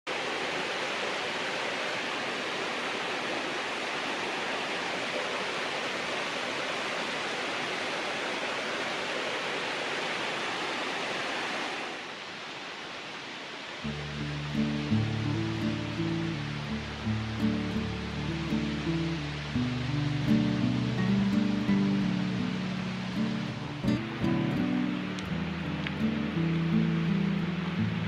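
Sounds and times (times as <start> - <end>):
waterfall rushing: 0.1 - 28.0
music: 13.9 - 28.0.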